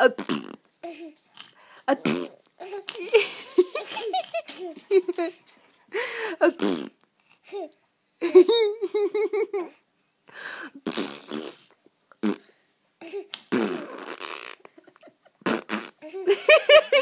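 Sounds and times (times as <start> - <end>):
person blowing raspberries: 0.0 - 0.7, 1.4 - 2.4, 6.2 - 7.0, 10.4 - 12.5, 13.3 - 14.7, 15.4 - 16.2.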